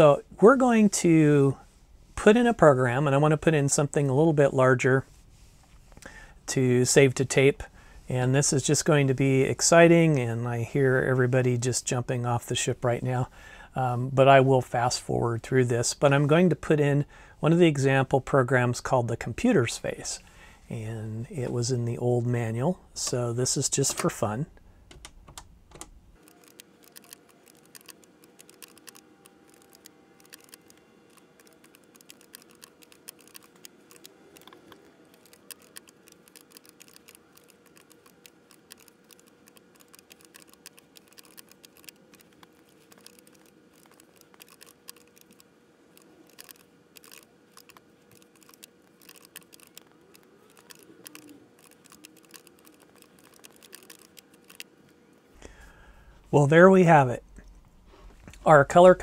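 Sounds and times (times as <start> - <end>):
faint steady hum: 0.0 - 59.0
keyboard keys clicking: 24.9 - 45.4, 46.0 - 54.7.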